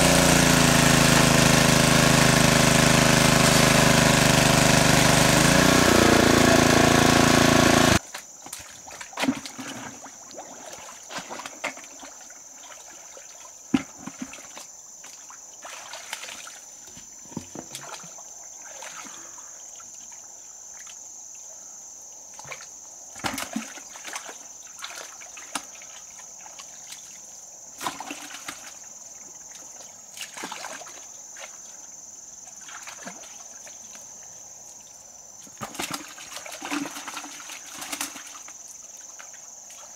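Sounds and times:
water pump engine running: 0:00.0 - 0:08.0
splashes in shallow water: 0:07.6 - 0:16.7, 0:17.7 - 0:19.4, 0:23.2 - 0:27.2, 0:27.8 - 0:28.8, 0:29.4 - 0:31.8, 0:32.5 - 0:33.9, 0:35.5 - 0:39.9.

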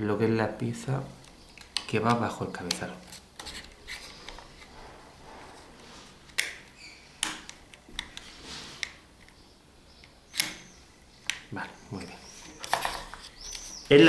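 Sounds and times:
sharp clicks: 0:10.0 - 0:11.5.

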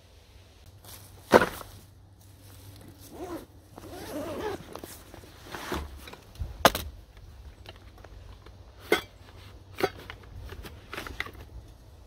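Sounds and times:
backpack zipper rasping: 0:03.0 - 0:04.9.

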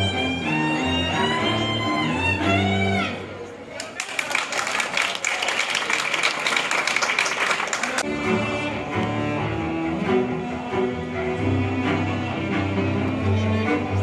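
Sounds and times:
two cellos playing bowed notes: 0:00.0 - 0:03.4, 0:08.0 - 0:14.0
applause: 0:03.7 - 0:08.0.

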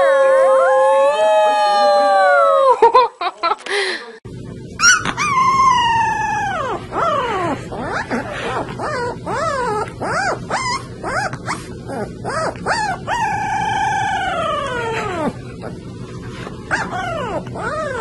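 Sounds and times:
puppy howling: 0:00.0 - 0:02.8, 0:04.8 - 0:15.9, 0:16.7 - 0:18.0
puppy yelping: 0:04.8 - 0:15.8, 0:16.7 - 0:18.0.

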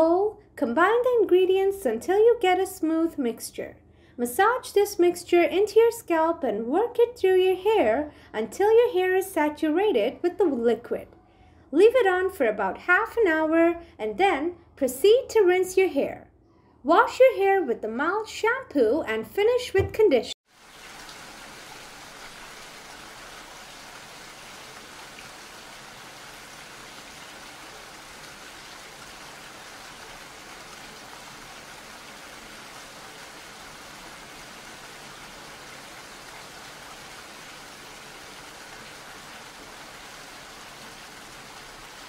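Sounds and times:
steady rain: 0:20.5 - 0:42.0.

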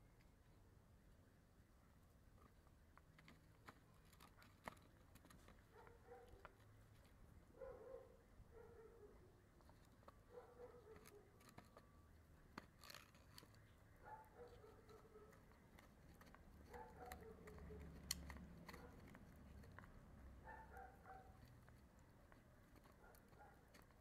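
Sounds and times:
dog gnawing bone scraping: 0:02.4 - 0:08.2, 0:08.8 - 0:24.0
teeth clicking on bone: 0:09.6 - 0:24.0.

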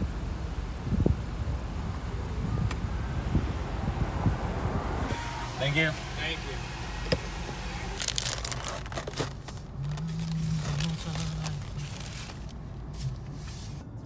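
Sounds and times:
low steady car hum: 0:00.0 - 0:14.0
crinkling and rustling handling noise: 0:08.0 - 0:13.8.

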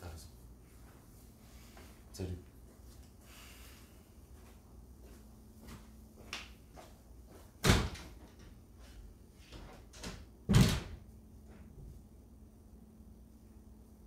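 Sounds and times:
soft footsteps: 0:00.5 - 0:09.6.

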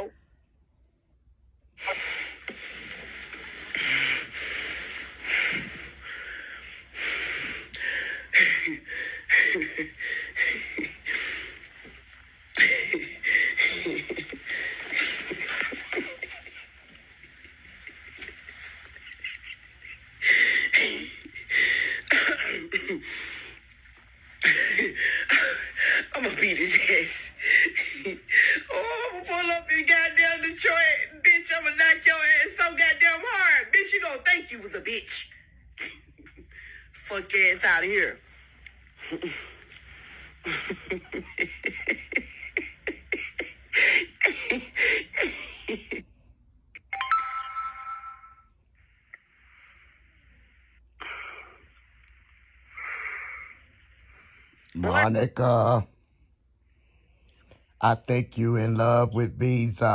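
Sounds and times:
woman laughing hard: 0:08.3 - 0:11.9, 0:12.5 - 0:21.8, 0:40.4 - 0:46.0.

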